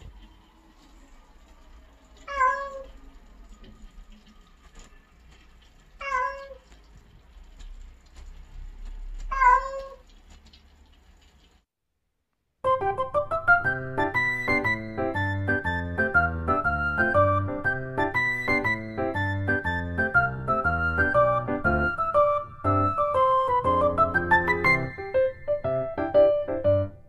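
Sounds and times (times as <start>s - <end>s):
cat meowing: 2.2s - 3.0s, 6.0s - 6.8s, 9.2s - 10.1s
light piano music: 12.6s - 27.0s.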